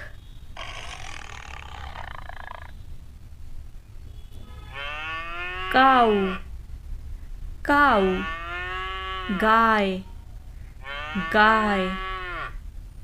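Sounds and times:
tiger roaring: 0.6s - 2.7s.

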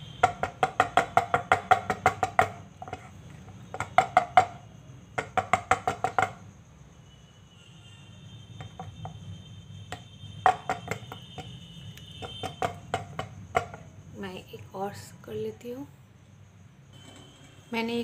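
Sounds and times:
metal plate knocking on wood: 0.2s - 4.6s, 5.2s - 6.4s, 8.6s - 9.2s, 9.9s - 11.6s, 12.2s - 13.9s.

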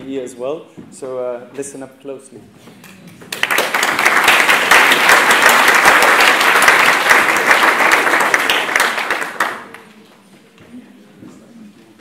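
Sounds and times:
audience applauding: 3.3s - 10.0s.

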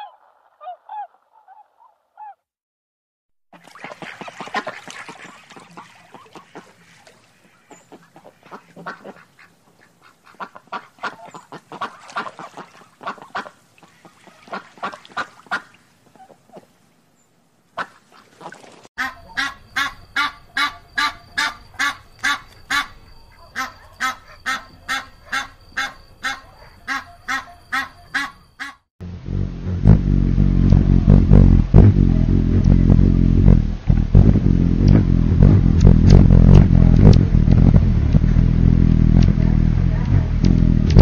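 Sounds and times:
geese honking: 3.8s - 16.3s, 19.0s - 28.8s.

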